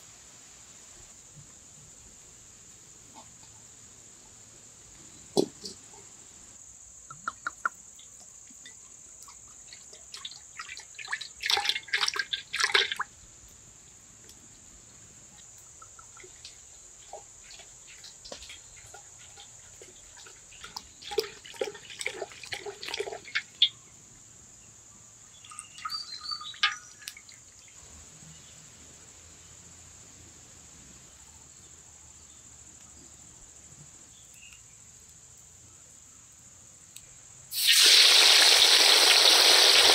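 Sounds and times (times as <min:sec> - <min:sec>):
steady high hiss: 0:00.0 - 0:09.4, 0:13.0 - 0:17.2, 0:23.6 - 0:39.9
oil pouring into metal wok: 0:10.2 - 0:13.0, 0:17.0 - 0:23.6, 0:37.5 - 0:39.9
bird calls: 0:25.4 - 0:27.8.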